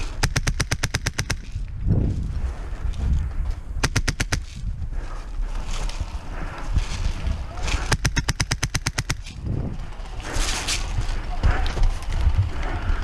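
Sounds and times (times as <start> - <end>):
airsoft rifle full-auto bursts: 0.2 - 1.5, 3.8 - 4.5, 7.9 - 9.2.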